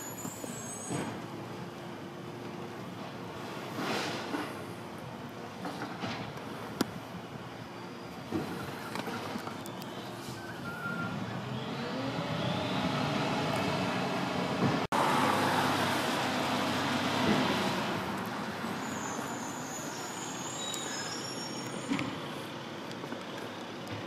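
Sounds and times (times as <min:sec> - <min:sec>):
street traffic noise: 0:00.0 - 0:24.0
diesel truck engine accelerating: 0:08.5 - 0:24.0.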